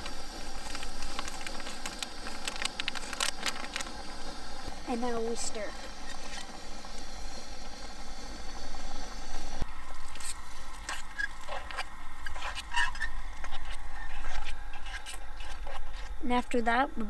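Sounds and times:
steady hiss: 0.0 - 17.0
spoon stirring mashed potatoes: 10.1 - 16.2.

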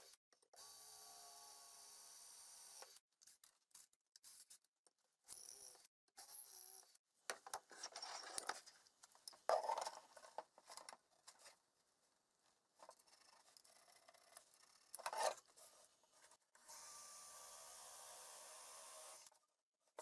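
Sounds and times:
cordless drill boring into wood: 16.6 - 19.3.

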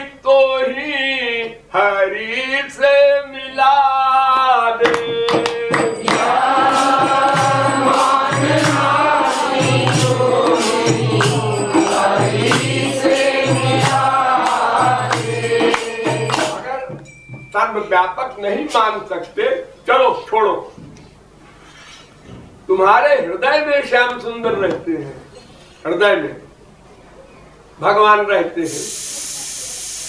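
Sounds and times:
group singing in chorus: 4.3 - 16.8
person singing: 4.8 - 16.6
drum beats: 4.8 - 17.6
jingling hand percussion: 4.8 - 17.9.

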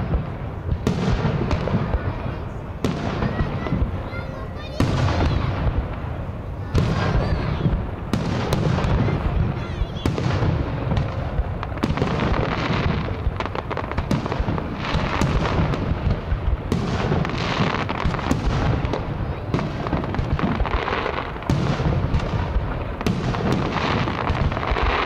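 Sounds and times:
fireworks bursting: 0.0 - 25.0.

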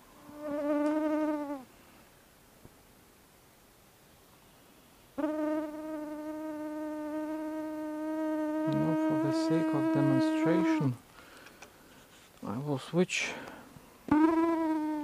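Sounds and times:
flying insect buzzing: 0.2 - 1.7, 5.2 - 11.0, 14.1 - 15.0.

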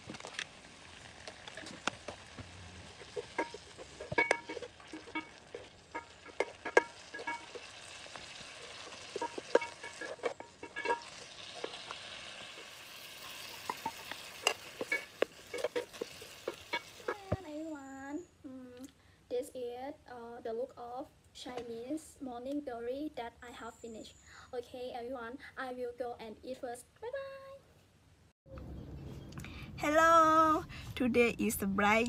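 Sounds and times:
hot oil sizzling: 0.0 - 17.8
wooden spatula knocking a pot: 3.0 - 12.6, 13.5 - 17.5.

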